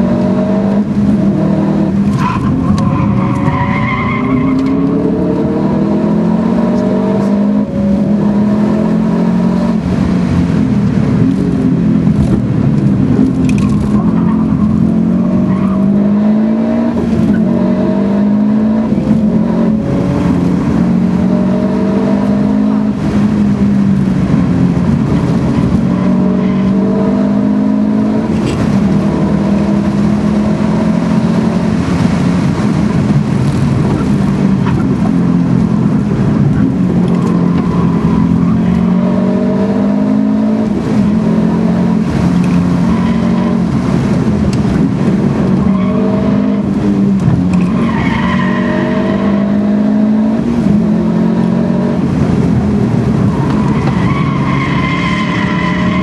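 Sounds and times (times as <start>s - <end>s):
car engine revving from inside cabin: 49.1s - 53.6s.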